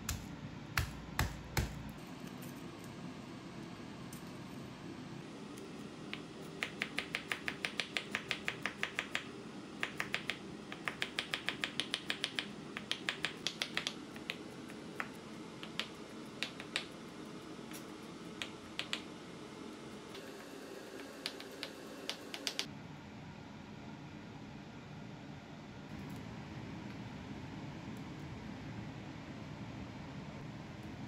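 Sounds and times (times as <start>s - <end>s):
knife chopping on cutting board: 0.0s - 1.9s.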